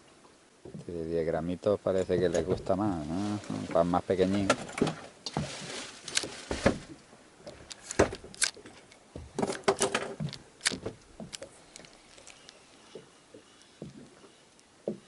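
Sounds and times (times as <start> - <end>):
handling knocks and clicks: 7.5 - 15.0.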